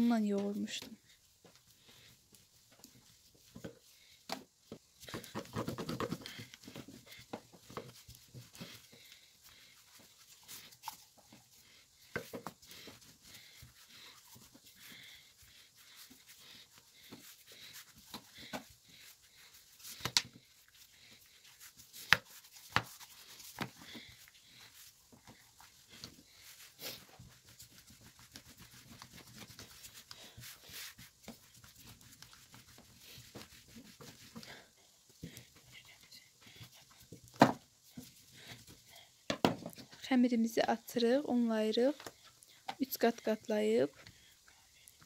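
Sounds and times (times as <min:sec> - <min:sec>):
rolling pin rolling dough: 0:02.7 - 0:35.6.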